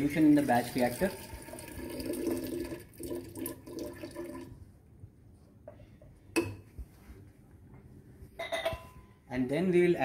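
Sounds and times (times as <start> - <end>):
liquid pouring from beaker: 0.2 - 4.6.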